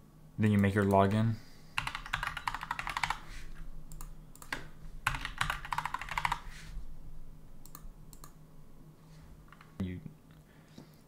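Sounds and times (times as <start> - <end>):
computer keyboard typing: 1.8 - 3.3, 3.9 - 6.5, 7.6 - 8.4, 9.5 - 9.7.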